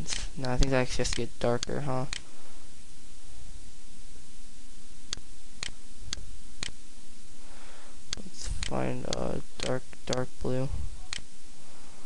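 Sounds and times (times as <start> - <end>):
computer mouse clicks: 0.0 - 2.2, 8.1 - 10.2, 11.1 - 11.3
steady low hum: 0.0 - 12.0.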